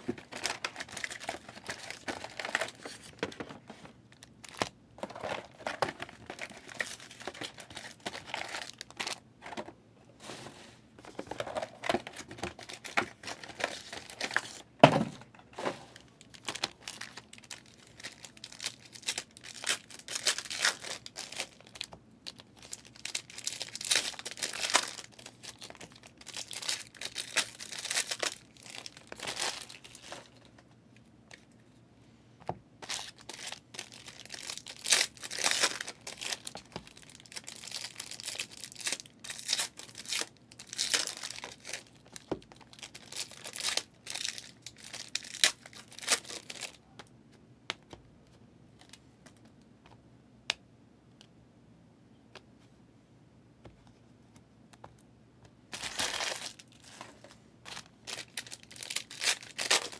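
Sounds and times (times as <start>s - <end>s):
plastic and foil crinkling: 0.0s - 9.6s, 11.0s - 14.8s, 15.6s - 30.6s, 32.8s - 46.8s, 55.7s - 59.9s.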